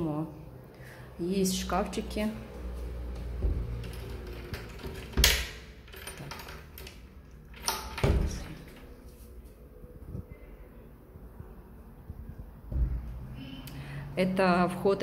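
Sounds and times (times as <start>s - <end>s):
wooden wardrobe doors opening: 7.5s - 9.0s.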